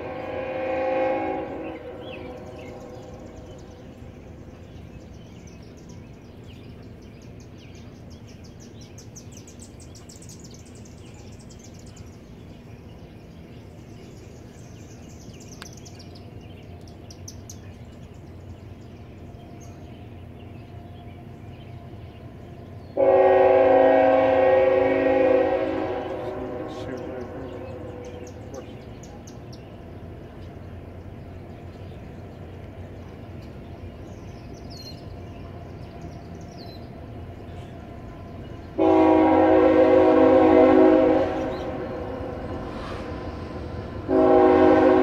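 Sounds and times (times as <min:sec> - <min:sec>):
locomotive air horn: 0:00.0 - 0:03.3, 0:23.0 - 0:28.2, 0:38.8 - 0:43.3, 0:43.9 - 0:45.0
birds chirping: 0:00.0 - 0:45.0.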